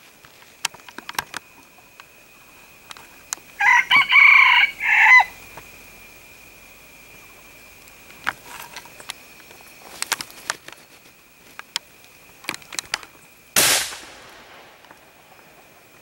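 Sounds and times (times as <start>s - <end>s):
high insect drone: 0.0s - 16.0s
gunshot: 13.6s - 14.8s.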